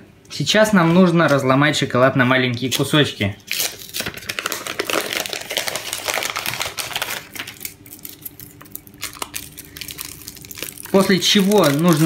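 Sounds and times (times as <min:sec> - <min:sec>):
foil wrapper crinkling: 0:03.4 - 0:12.0.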